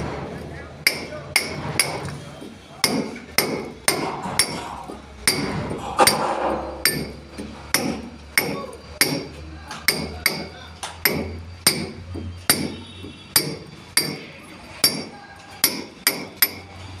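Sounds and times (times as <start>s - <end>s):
hammer striking steel chisel: 0.8s - 2.2s, 2.8s - 16.7s.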